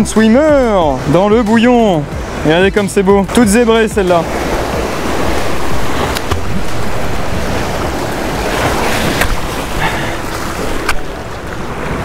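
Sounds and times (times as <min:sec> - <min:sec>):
surf breaking over rocks: 0:01.0 - 0:12.0
wind on microphone: 0:04.2 - 0:12.0.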